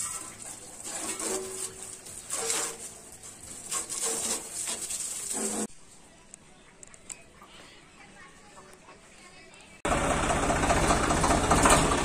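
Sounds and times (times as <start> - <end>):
hose water spraying on metal: 0.0 - 5.7.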